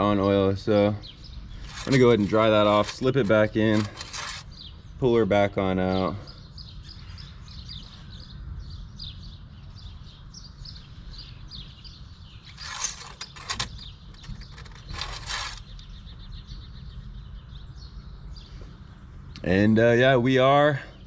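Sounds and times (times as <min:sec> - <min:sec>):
dipstick scraping in tube: 0:01.6 - 0:04.5, 0:12.5 - 0:15.7.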